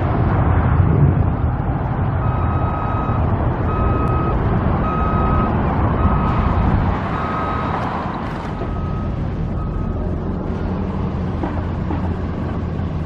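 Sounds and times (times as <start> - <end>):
low rumble of vehicle engines: 0.0 - 13.0
reversing alarm beeping: 2.2 - 7.9, 8.6 - 10.2.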